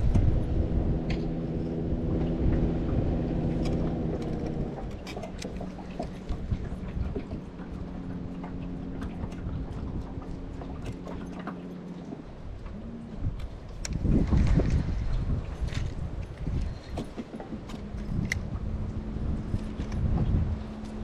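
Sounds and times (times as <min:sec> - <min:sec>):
electric trolling motor humming: 0:00.0 - 0:21.0
wind rumble on microphone: 0:00.0 - 0:21.0
light clicks: 0:15.7 - 0:18.5.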